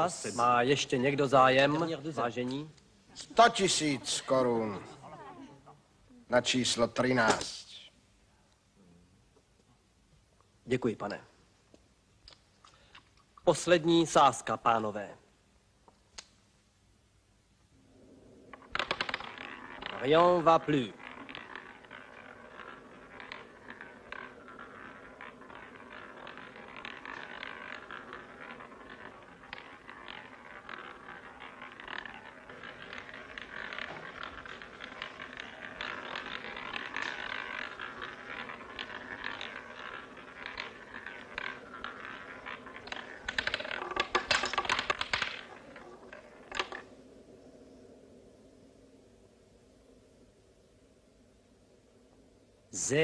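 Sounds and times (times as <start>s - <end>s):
roulette ball clicking whir: 17.9s - 50.1s
ball clattering over dividers: 18.4s - 47.0s.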